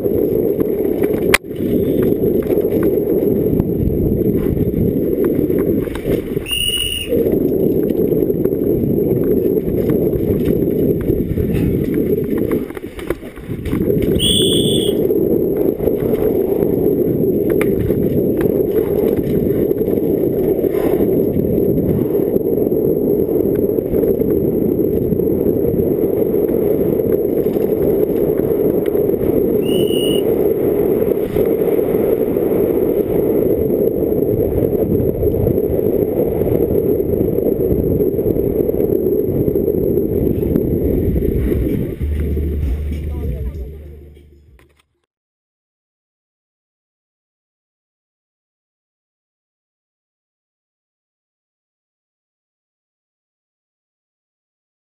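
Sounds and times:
bike rattling on rough trail: 0.0s - 29.5s
wind buffeting microphone: 0.0s - 44.6s
short high squeals: 6.4s - 7.2s, 14.2s - 15.0s, 29.6s - 30.2s.

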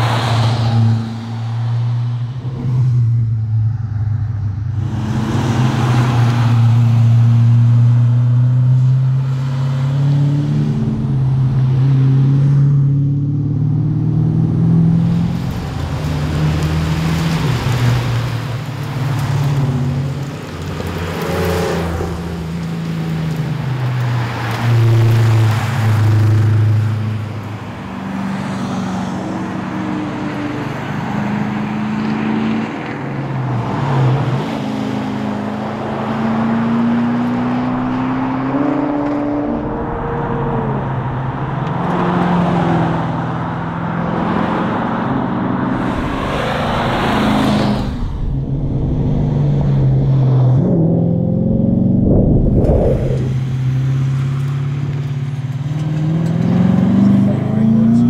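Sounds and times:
car engine revving past: 35.7s - 58.0s.

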